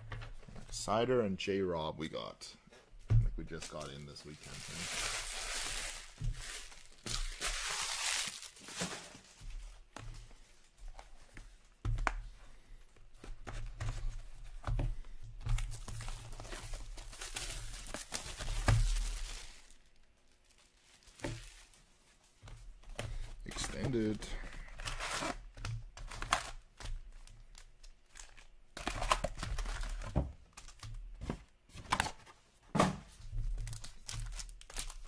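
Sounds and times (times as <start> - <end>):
plastic wrap tearing and crinkling: 3.6 - 9.4, 15.6 - 21.9, 24.9 - 30.8, 33.4 - 35.0.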